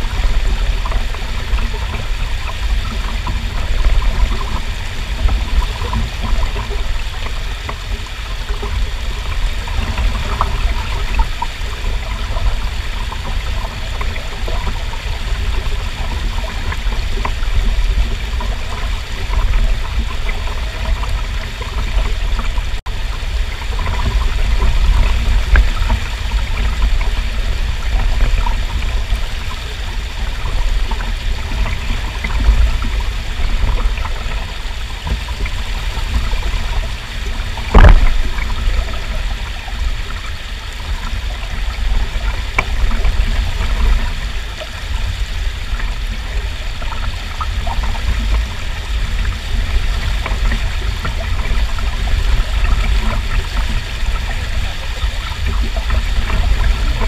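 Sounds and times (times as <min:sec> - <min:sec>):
deep rumble: 0:00.0 - 0:57.0
stream water rushing: 0:00.0 - 0:57.0
sharp thump: 0:37.7 - 0:38.2.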